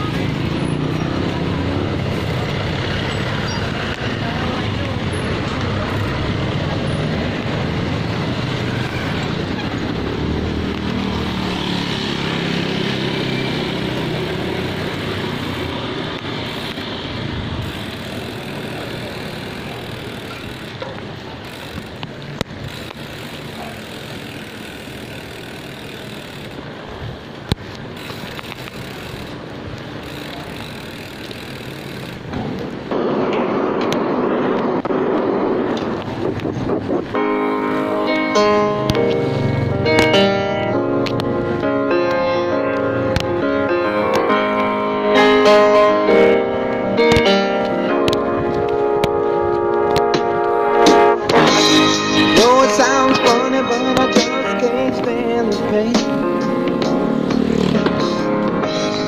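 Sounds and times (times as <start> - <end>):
road noise: 0.0 - 59.0
vehicle engine: 0.0 - 59.0
wind noise: 32.3 - 38.0.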